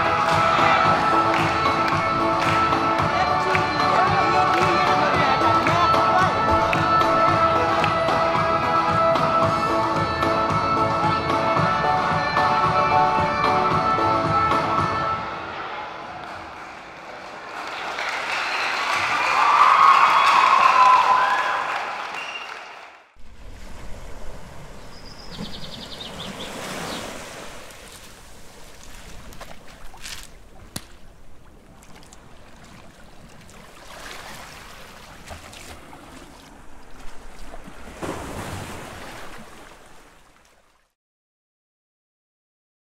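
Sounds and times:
ocean surf washing: 23.2s - 40.4s.

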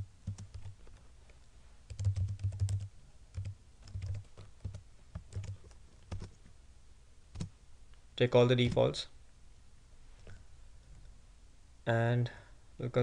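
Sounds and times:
typing on computer keyboard: 0.2s - 0.8s, 1.9s - 6.4s.

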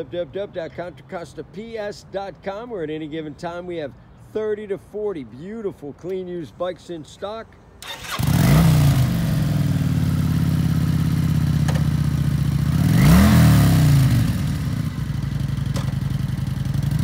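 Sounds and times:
motorcycle engine idling and revving: 7.8s - 17.0s.

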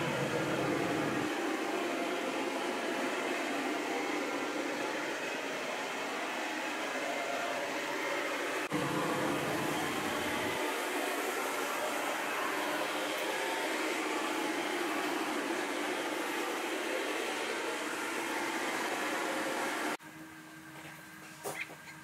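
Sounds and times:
ventilation air rushing: 0.0s - 4.6s, 8.4s - 20.0s.

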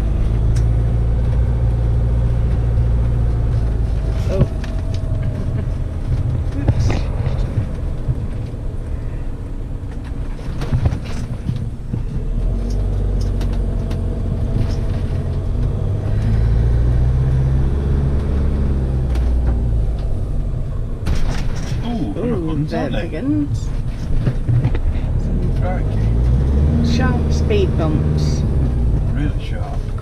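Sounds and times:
diesel engine: 0.0s - 30.0s
road noise: 0.0s - 30.0s
knocks and rattles: 9.9s - 16.4s, 21.0s - 22.2s.

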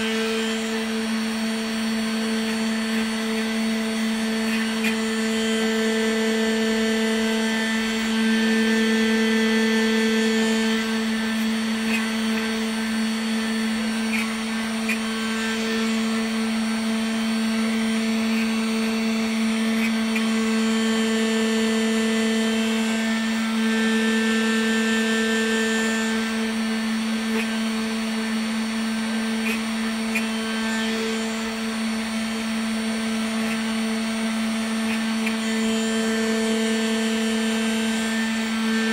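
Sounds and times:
spindle motor whining: 0.0s - 38.9s.

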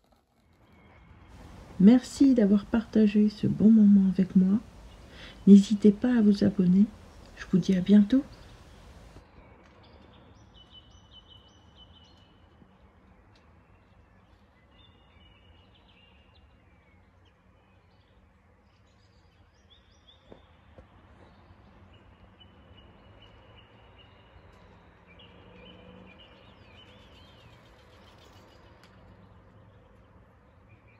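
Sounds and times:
birds chirping: 1.4s - 9.2s
low steady hum: 1.4s - 9.2s.

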